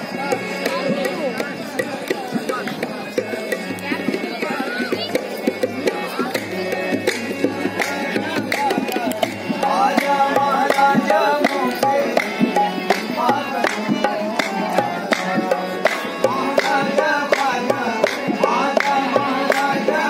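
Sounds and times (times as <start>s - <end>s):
harmonium melody: 0.0s - 20.0s
hand drum beat: 0.1s - 20.0s
man singing: 5.9s - 20.0s.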